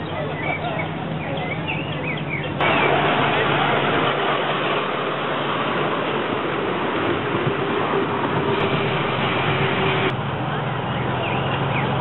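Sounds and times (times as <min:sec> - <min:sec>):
train wheels rumbling on rails: 0:02.5 - 0:10.2
steady hum: 0:02.6 - 0:10.2.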